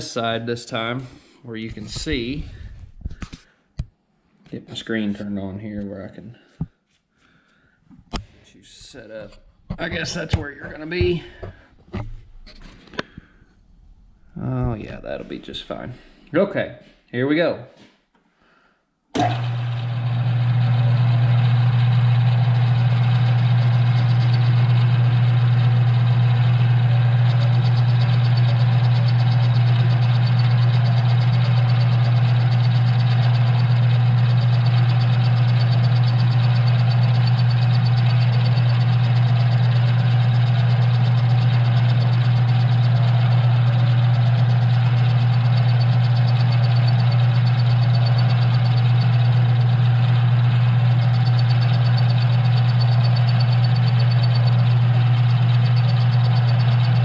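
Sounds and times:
lathe motor humming: 0:19.2 - 0:57.0.

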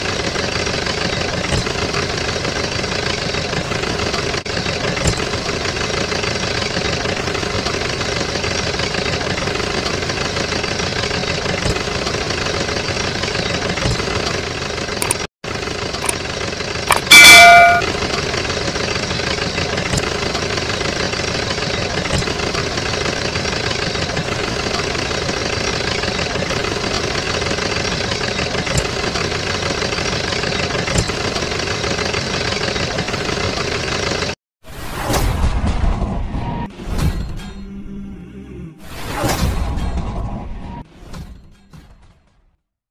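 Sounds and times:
engine running: 0:00.0 - 0:34.4
loud ringing tone: 0:16.9 - 0:18.4.

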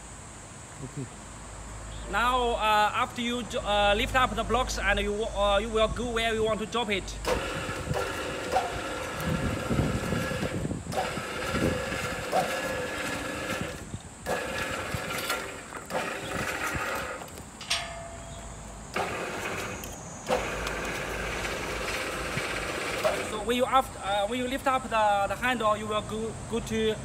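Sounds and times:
electric hoist motor whining: 0:06.5 - 0:24.6.

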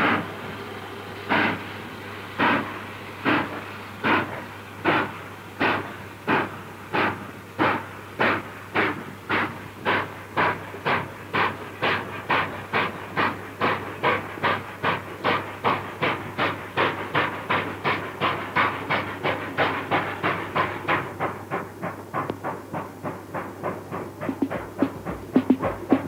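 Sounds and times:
steam locomotive chuffing: 0:00.0 - 0:26.0.

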